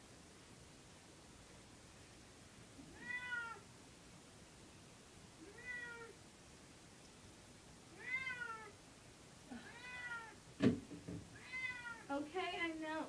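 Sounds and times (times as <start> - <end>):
cat meowing in distress: 2.9 - 3.6, 5.4 - 6.2, 8.0 - 8.8, 9.5 - 10.4, 11.4 - 12.1.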